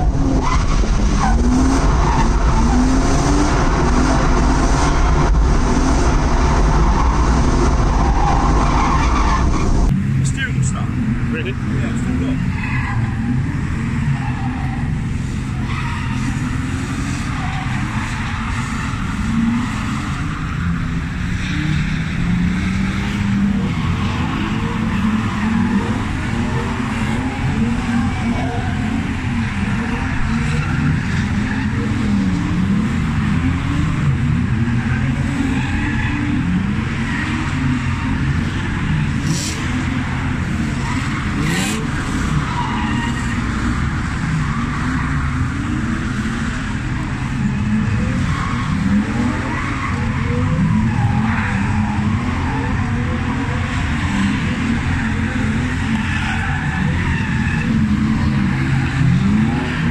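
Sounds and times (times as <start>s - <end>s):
car engines revving: 0.0s - 59.9s
tyre squeal: 40.6s - 43.5s.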